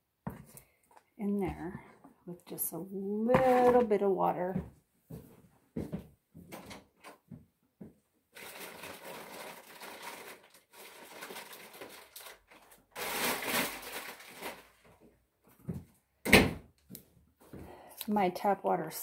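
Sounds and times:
rustling: 8.4 - 15.0.

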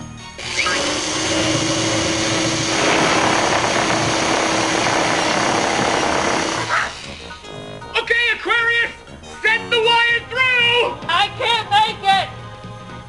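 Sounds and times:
power tool motor humming: 0.4 - 7.8.

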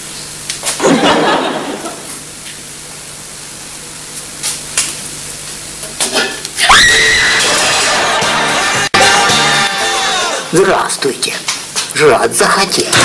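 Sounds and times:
steady hiss: 0.0 - 6.6, 10.3 - 13.0
person chuckling: 0.8 - 2.2.

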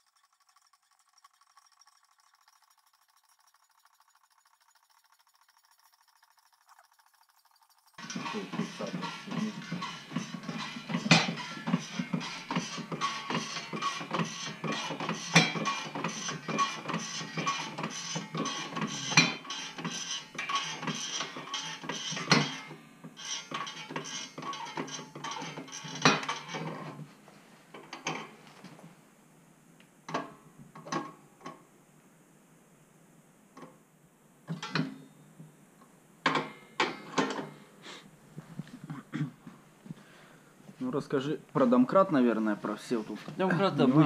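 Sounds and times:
jack clicking and clanking: 7.8 - 22.6.

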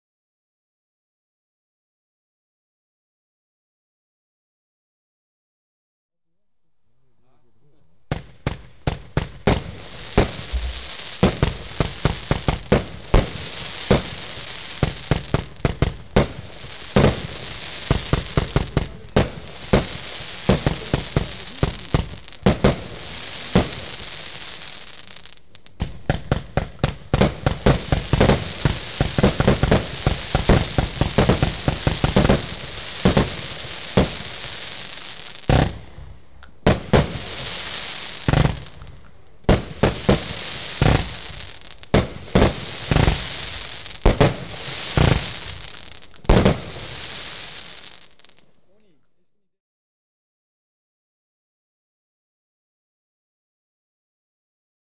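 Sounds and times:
fireworks crackling: 7.6 - 48.8
fireworks launch thumps: 8.1 - 34.5, 35.4 - 36.1.

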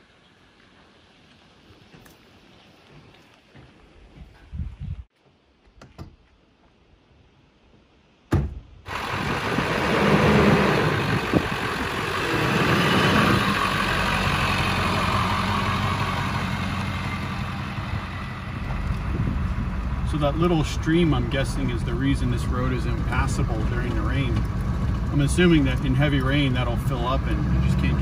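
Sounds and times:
road noise: 0.0 - 4.4, 7.6 - 28.0
sharp knock: 8.3 - 8.6
truck engine running: 8.9 - 28.0.

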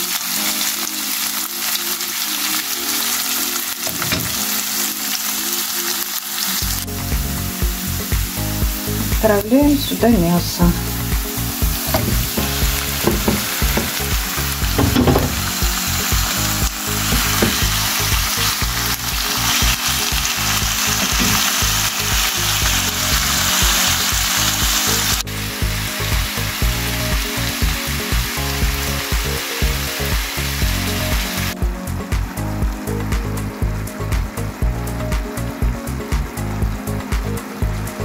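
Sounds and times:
pork sizzling in a frying pan: 0.0 - 38.0
wooden spatula turning food: 11.6 - 16.3.

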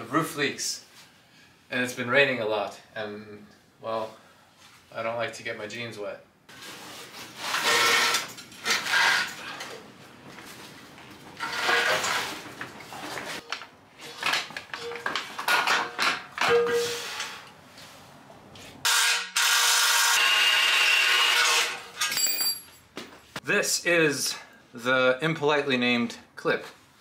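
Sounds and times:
tools scraping and knocking: 11.3 - 17.3.

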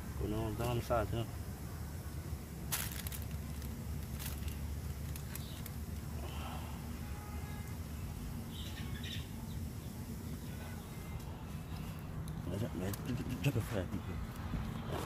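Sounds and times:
low outdoor rumble: 0.0 - 15.0
foil and wire grate rustling: 2.7 - 6.0.

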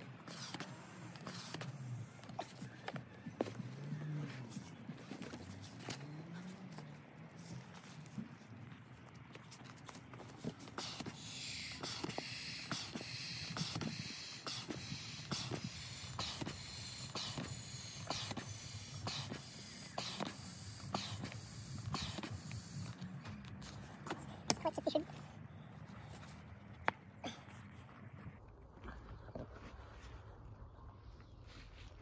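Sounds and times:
electric air pump running: 0.0 - 4.0, 10.4 - 23.8.

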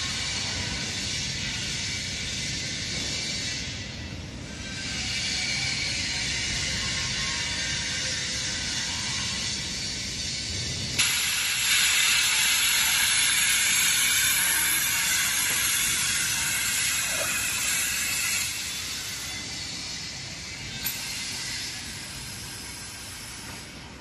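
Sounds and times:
pressurized gas hissing: 9.4 - 24.0.

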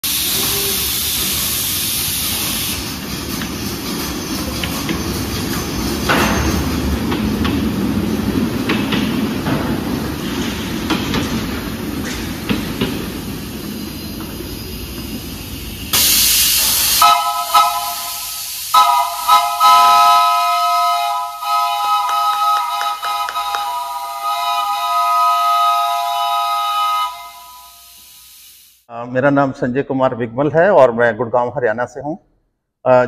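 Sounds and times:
hissing air exhaust: 0.0 - 6.4, 9.8 - 28.9
wheels rumbling on track: 0.0 - 17.0, 19.8 - 26.6.

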